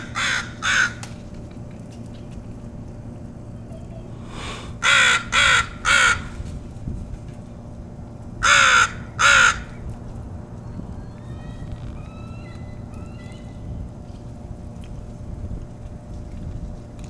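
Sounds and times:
crows cawing: 0:00.0 - 0:01.0, 0:04.8 - 0:06.3, 0:08.4 - 0:09.8.

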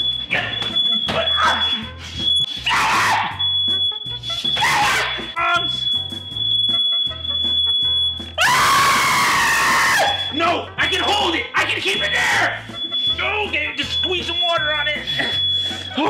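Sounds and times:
background music with bass line: 0:00.0 - 0:16.0
smoke alarm tone: 0:00.0 - 0:16.0
loud shout: 0:02.7 - 0:03.4, 0:04.6 - 0:05.2, 0:08.4 - 0:10.2.

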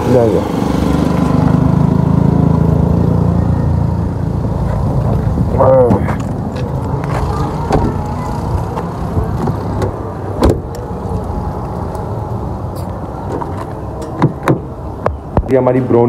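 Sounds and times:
low engine-like hum: 0:00.0 - 0:16.0
car door slamming shut: 0:09.4 - 0:10.7.

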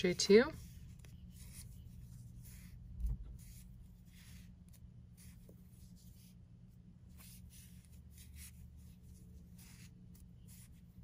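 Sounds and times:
low steady hum: 0:00.0 - 0:11.0
soft yarn rustles: 0:00.0 - 0:11.0.

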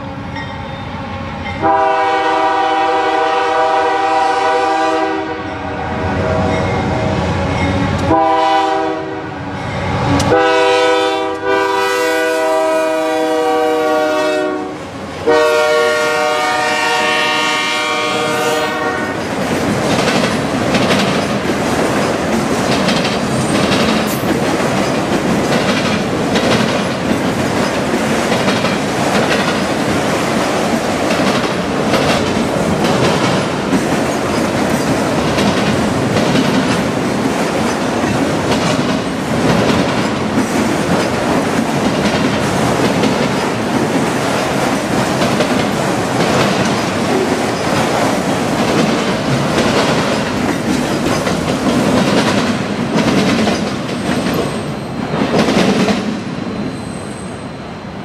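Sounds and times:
locomotive air horn: 0:01.6 - 0:07.2, 0:08.0 - 0:09.5, 0:10.1 - 0:19.2
train wheels clattering over rail joints: 0:19.2 - 0:54.6.

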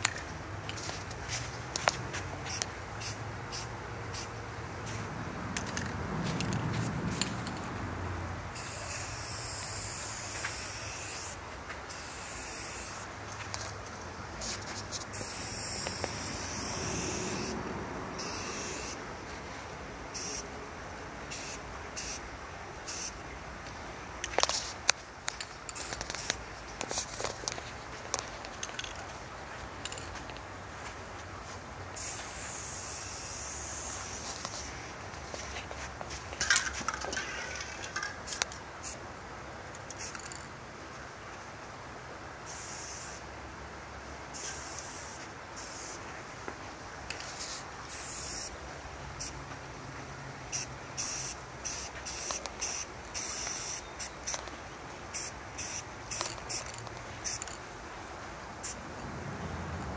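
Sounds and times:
spray paint can hissing: 0:02.5 - 0:04.4, 0:08.6 - 0:13.1, 0:14.4 - 0:17.6, 0:18.2 - 0:19.0, 0:20.1 - 0:20.5, 0:21.3 - 0:22.2, 0:22.9 - 0:23.2, 0:25.7 - 0:26.4, 0:32.0 - 0:34.7, 0:39.9 - 0:40.3, 0:42.5 - 0:43.2, 0:44.4 - 0:46.0, 0:47.3 - 0:48.6, 0:50.5 - 0:54.5, 0:55.1 - 0:57.5
spray paint can rattling: 0:25.7 - 0:27.4, 0:39.9 - 0:40.4, 0:47.3 - 0:48.5, 0:50.5 - 0:54.5, 0:55.1 - 0:57.6.

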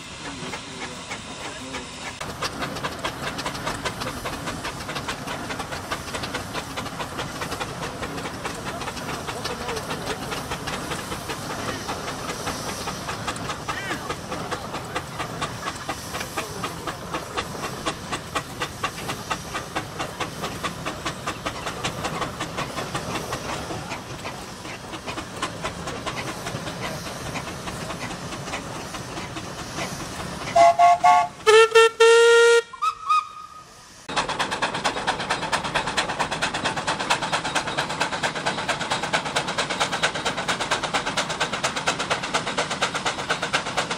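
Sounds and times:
steam engine exhaust chuffing: 0:00.0 - 0:43.9
steam whistle blasts: 0:30.5 - 0:33.8.

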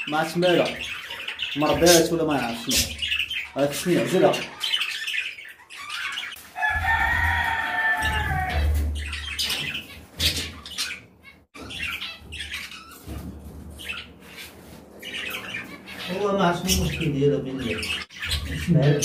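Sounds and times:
bird squawking: 0:00.0 - 0:13.2, 0:13.8 - 0:19.0
birds flapping in a cage: 0:06.3 - 0:10.6.

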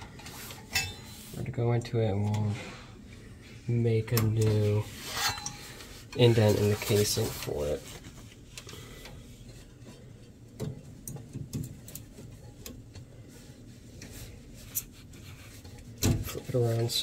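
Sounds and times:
hands rubbing wires: 0:04.3 - 0:08.6, 0:11.0 - 0:17.0.

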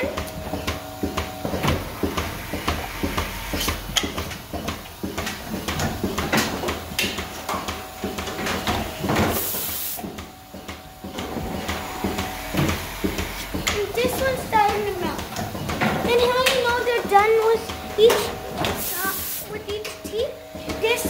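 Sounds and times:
milking machine mechanical clicks: 0:00.0 - 0:21.0
air hissing: 0:08.8 - 0:10.7, 0:17.8 - 0:19.6.

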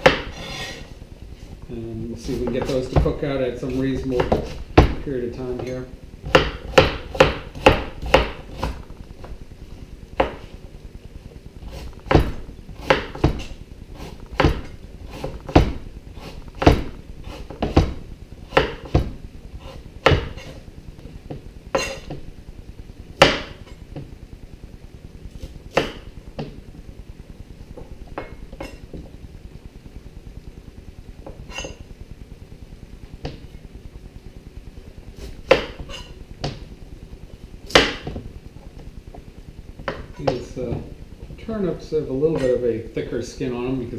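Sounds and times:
knife chopping on cutting board: 0:00.0 - 0:00.7, 0:04.2 - 0:05.0, 0:06.3 - 0:08.8, 0:10.2 - 0:10.4, 0:11.7 - 0:20.6, 0:23.2 - 0:23.6, 0:25.4 - 0:26.6, 0:35.2 - 0:36.6, 0:37.7 - 0:38.2.

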